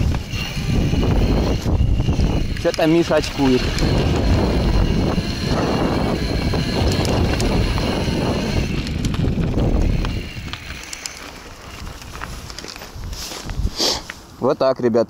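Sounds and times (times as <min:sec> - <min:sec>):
wind buffeting microphone: 0:00.0 - 0:13.8
tyres rumbling on gravel: 0:00.0 - 0:15.0
rattles and clicks from stones: 0:06.8 - 0:14.2.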